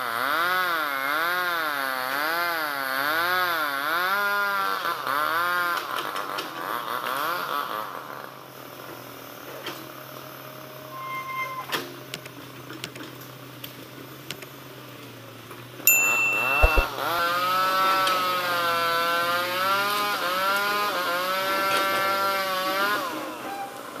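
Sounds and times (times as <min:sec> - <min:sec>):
clicks: 0:16.4 - 0:16.9.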